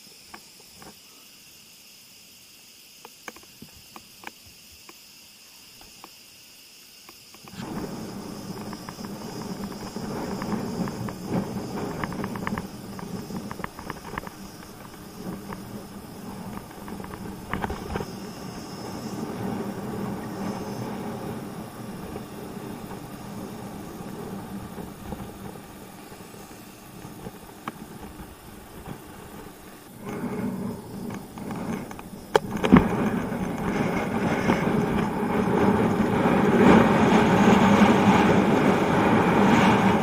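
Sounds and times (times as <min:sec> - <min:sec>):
insects chirring: 0:00.0 - 0:40.0
bicycle tyres rolling and rattling: 0:07.4 - 0:40.0
wind buffeting microphone: 0:07.4 - 0:40.0.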